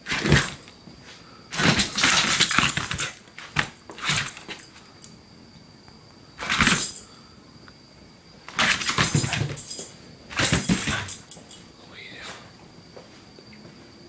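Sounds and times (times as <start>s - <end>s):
dog scuffling and thumping: 0.0s - 5.0s, 6.4s - 7.0s, 8.5s - 11.6s
crickets chirring: 0.0s - 14.0s.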